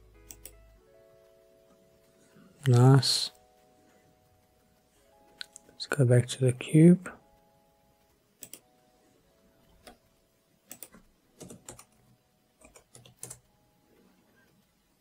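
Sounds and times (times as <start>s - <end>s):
keyboard and mouse clicks: 0.2s - 0.6s, 4.2s - 5.8s, 8.4s - 8.8s, 9.6s - 13.5s.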